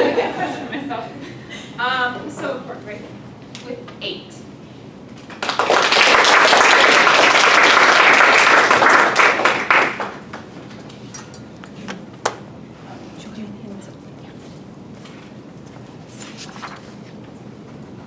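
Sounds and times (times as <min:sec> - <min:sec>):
small audience applauding: 0:05.3 - 0:10.5.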